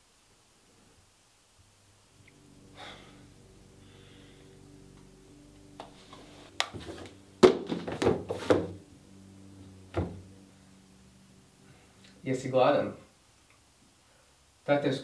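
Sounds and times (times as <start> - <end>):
books thunking on wooden desk: 6.7 - 8.8.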